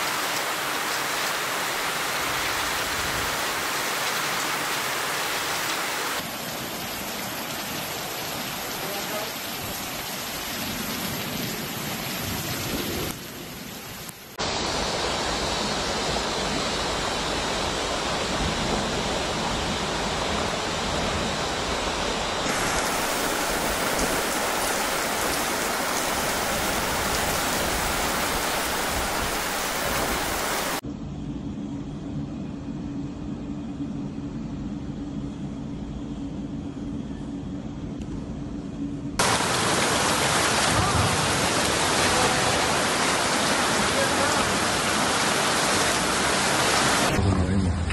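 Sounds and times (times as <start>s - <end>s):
heavy rain: 0.0s - 30.8s, 39.2s - 47.9s
rushing floodwater: 0.0s - 30.8s, 39.2s - 47.9s
low hum: 30.8s - 39.8s.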